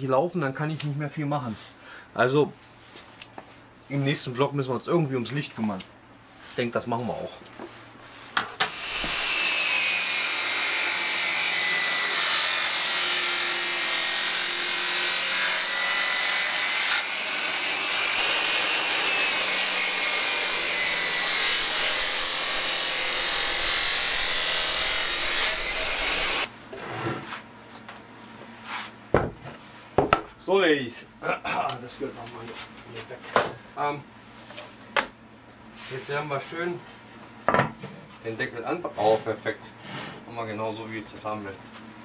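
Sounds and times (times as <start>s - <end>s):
table saw cutting wood: 8.6s - 27.2s.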